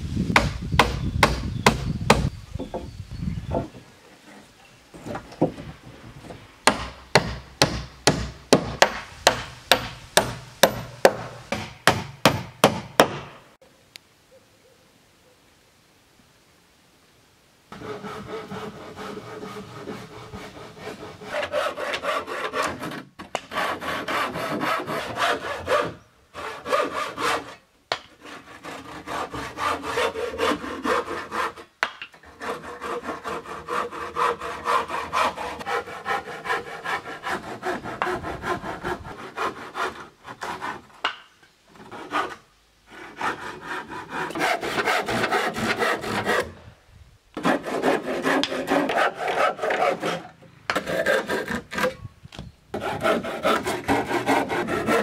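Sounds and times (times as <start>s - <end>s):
hand saw cutting wood: 6.7s - 13.3s, 17.7s - 46.6s, 47.4s - 52.1s, 52.7s - 55.0s.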